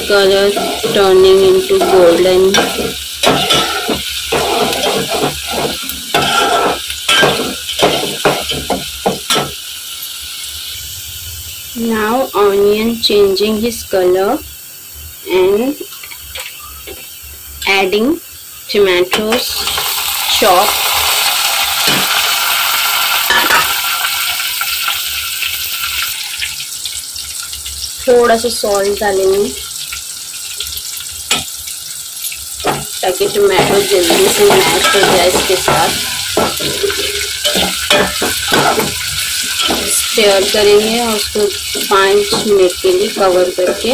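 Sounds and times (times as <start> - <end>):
onions sizzling in oil: 0.0 - 43.9
spoon scraping metal pot: 1.8 - 8.6.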